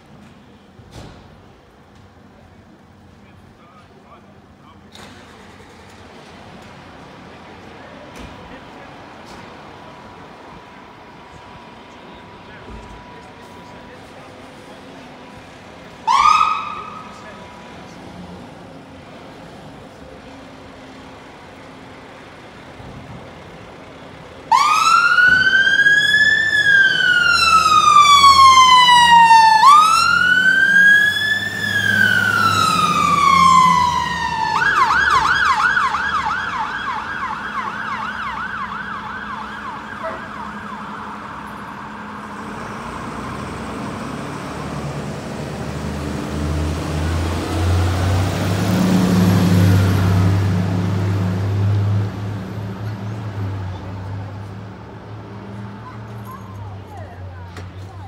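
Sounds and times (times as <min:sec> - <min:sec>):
fire engine siren wailing: 0:09.8 - 0:18.0, 0:23.7 - 0:54.8
siren yelp: 0:16.0 - 0:17.4, 0:24.4 - 0:42.2.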